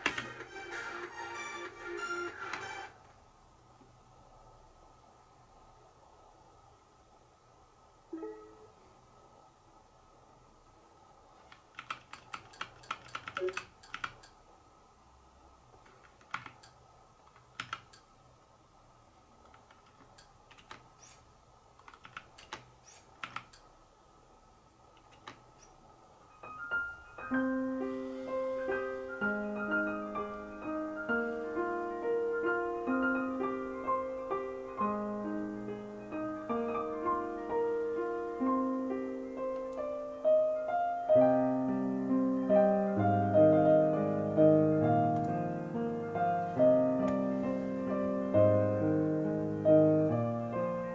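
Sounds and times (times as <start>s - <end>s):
piano music over speaker: 0.0s - 3.0s, 8.1s - 8.8s, 26.3s - 50.9s
mechanical keyboard key clicks: 11.5s - 14.3s.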